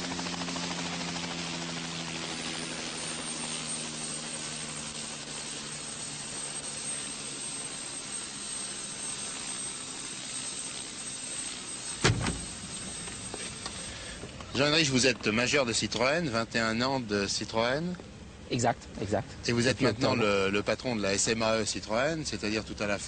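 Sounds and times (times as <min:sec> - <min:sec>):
helicopter engine running: 0:00.0 - 0:23.0
thump: 0:12.0 - 0:12.4.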